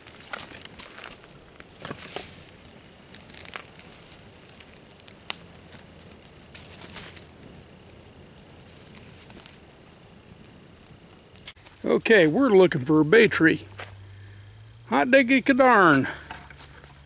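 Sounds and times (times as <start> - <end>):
sharp pops of fire: 0.0 - 11.8
campfire crackling: 0.0 - 17.0
rustling dry brush: 0.2 - 4.6, 5.6 - 7.4, 8.6 - 9.8.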